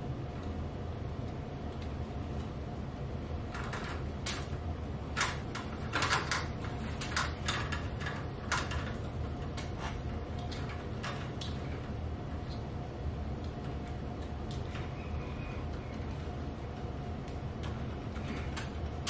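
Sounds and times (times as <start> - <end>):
steady low hum: 0.0 - 19.0
wires scraping and clicking on metal: 3.4 - 12.8, 13.4 - 19.0.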